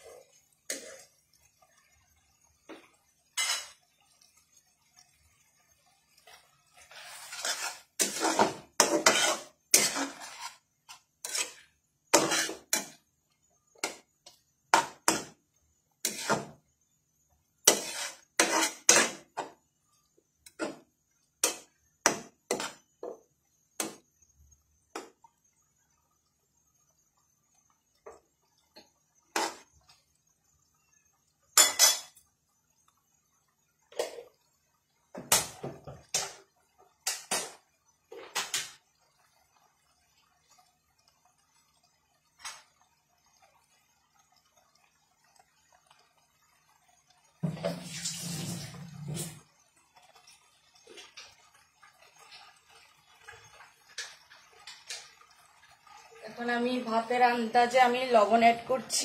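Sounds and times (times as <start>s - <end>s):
spatula scraping metal pan: 0.0s - 1.2s, 3.2s - 3.8s, 6.3s - 13.0s, 16.0s - 16.6s, 17.6s - 19.6s, 21.4s - 22.8s, 29.3s - 29.7s
pan bubbling: 0.0s - 59.0s.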